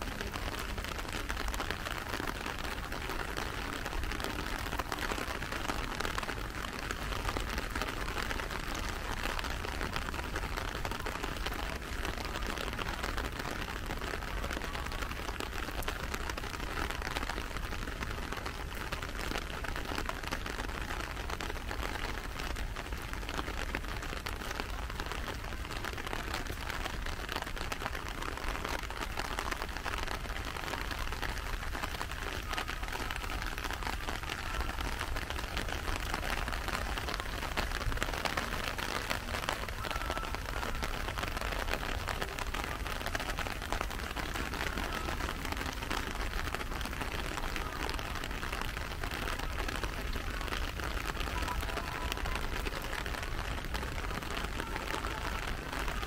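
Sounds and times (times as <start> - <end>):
steady rain patter: 0.0 - 56.0.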